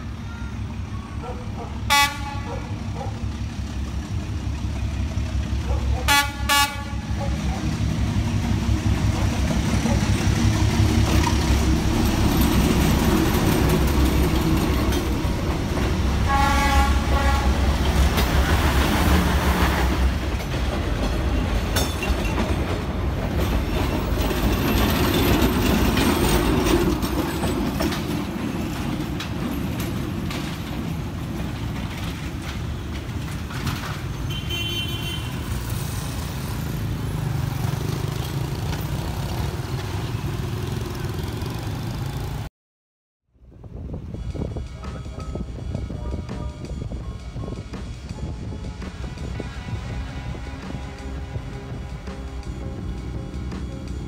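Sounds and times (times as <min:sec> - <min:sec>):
motor traffic: 0:00.0 - 0:21.8, 0:27.7 - 0:42.5, 0:43.7 - 0:54.0
car horns beeping: 0:34.3 - 0:35.4.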